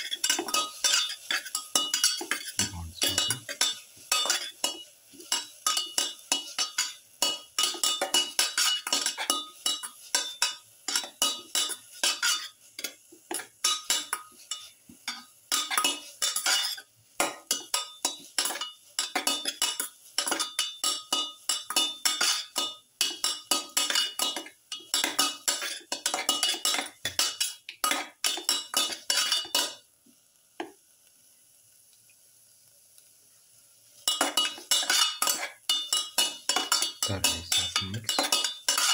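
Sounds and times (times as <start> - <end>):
food frying in a pan: 0.0 - 38.9
faint steady background: 0.6 - 9.8
utensil scraping a metal pan: 36.7 - 38.9.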